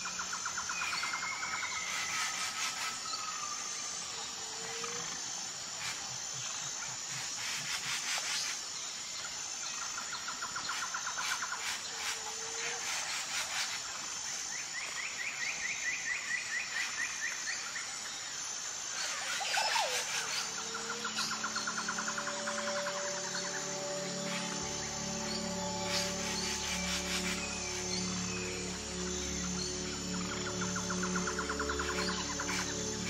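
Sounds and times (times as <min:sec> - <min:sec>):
high insect hum: 0:00.0 - 0:33.0
rapid trilling calls: 0:18.9 - 0:33.0.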